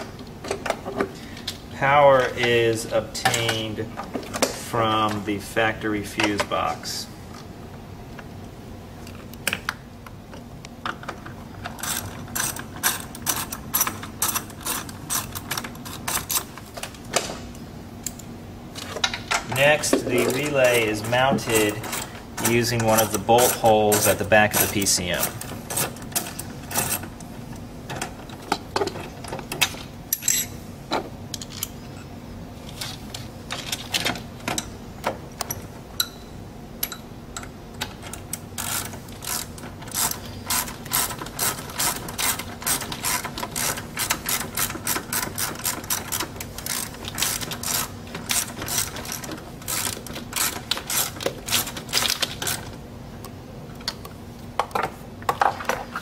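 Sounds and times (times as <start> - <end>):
faint steady hum: 0.0 - 56.0
ratchet wrench clicking: 38.6 - 52.6.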